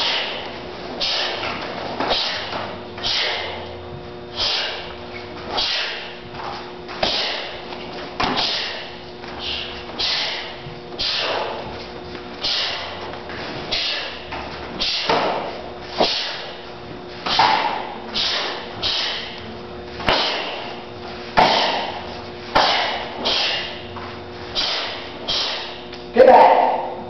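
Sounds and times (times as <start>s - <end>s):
uniforms swishing and snapping: 0.0s - 3.5s, 4.4s - 23.8s, 24.4s - 26.1s
feet thudding on mat: 0.0s - 25.9s.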